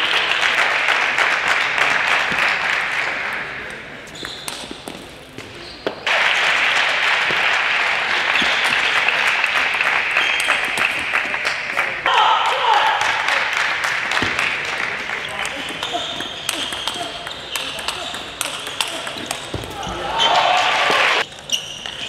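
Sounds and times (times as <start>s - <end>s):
audience applause: 0.0s - 3.2s, 6.1s - 15.2s, 20.1s - 21.2s.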